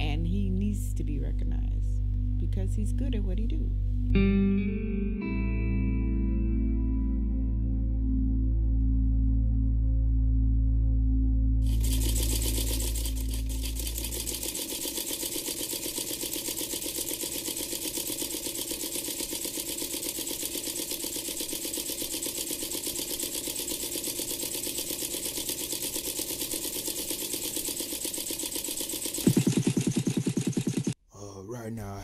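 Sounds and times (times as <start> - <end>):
sewing machine stitching: 11.6 - 31.0.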